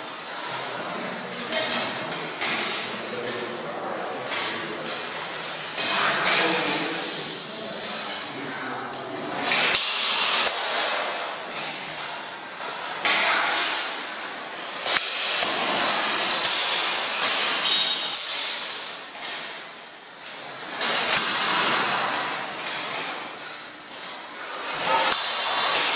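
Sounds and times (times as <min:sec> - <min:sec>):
swords clashing on armour: 0:09.4 - 0:14.2, 0:14.8 - 0:19.6, 0:20.3 - 0:23.2, 0:24.0 - 0:25.9.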